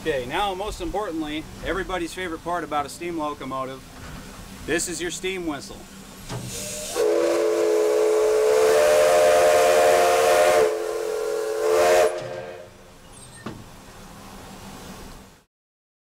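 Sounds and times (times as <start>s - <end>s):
steam hiss: 1.0s - 15.3s
steam locomotive whistle: 6.5s - 12.8s.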